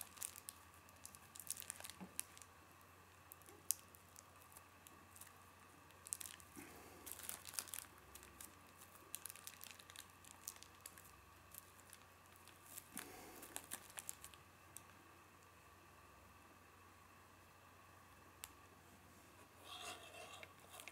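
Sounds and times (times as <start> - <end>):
plastic bag crinkling: 0.0 - 2.5, 3.3 - 14.9, 19.7 - 20.9.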